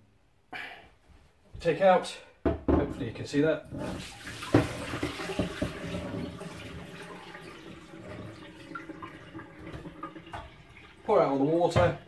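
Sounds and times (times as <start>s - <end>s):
water splashing in a sink: 3.6s - 12.0s.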